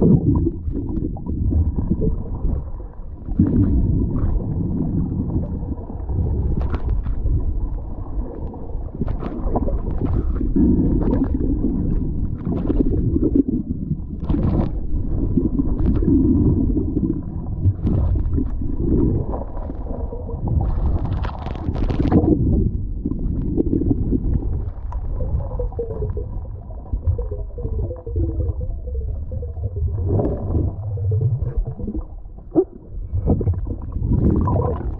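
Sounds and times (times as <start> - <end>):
underwater rumble and gurgling: 0.0 - 34.9.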